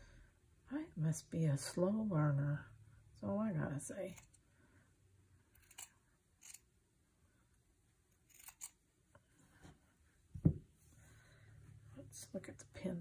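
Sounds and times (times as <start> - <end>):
knock: 10.4 - 10.7.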